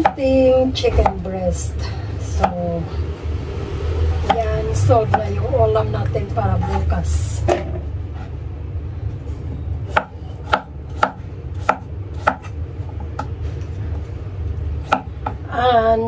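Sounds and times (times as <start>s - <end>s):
steady low hum: 0.0s - 16.0s
cleaver chopping food: 9.9s - 12.5s.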